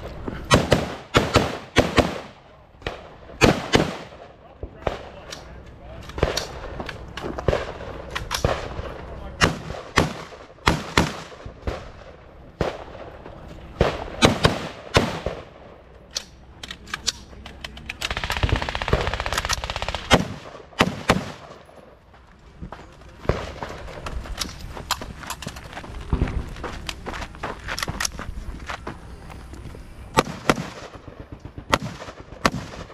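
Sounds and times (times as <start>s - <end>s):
rifle shots: 0.5s - 5.3s, 6.1s - 15.7s, 18.0s - 21.7s, 30.2s - 32.9s.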